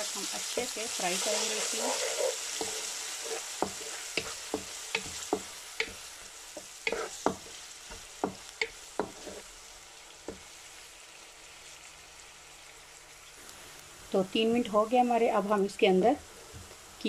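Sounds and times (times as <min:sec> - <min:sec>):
onion sizzling in oil: 0:00.0 - 0:17.0
wooden spatula scraping a pan: 0:00.5 - 0:06.0, 0:06.6 - 0:09.5.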